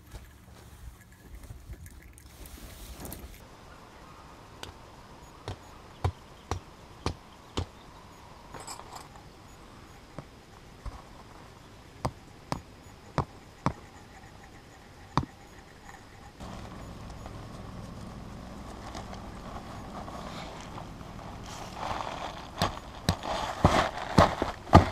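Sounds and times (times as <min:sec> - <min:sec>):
rustling noise: 0:00.0 - 0:03.4, 0:16.4 - 0:24.9.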